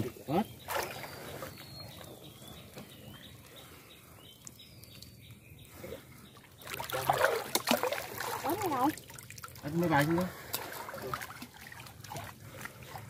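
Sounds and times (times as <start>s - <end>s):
faint whistled bird chirps: 0.8s - 3.4s.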